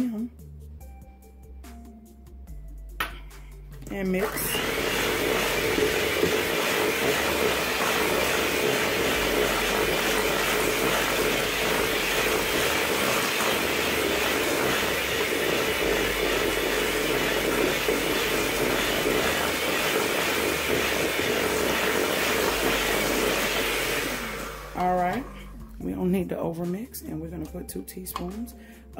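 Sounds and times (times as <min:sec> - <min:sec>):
electric mixer running: 0:03.8 - 0:25.6.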